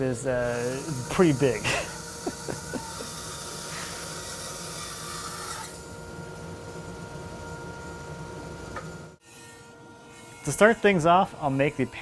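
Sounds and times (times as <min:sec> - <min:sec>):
bandsaw motor humming: 0:00.0 - 0:12.0
bandsaw cutting wood hiss: 0:00.4 - 0:05.7.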